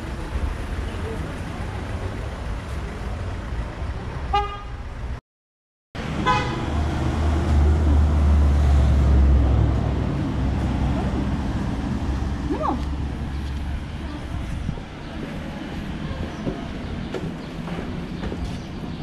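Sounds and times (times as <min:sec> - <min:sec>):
traffic rumble: 0:00.0 - 0:05.2, 0:06.0 - 0:19.0
car horn toots: 0:04.3 - 0:04.8, 0:06.2 - 0:06.6.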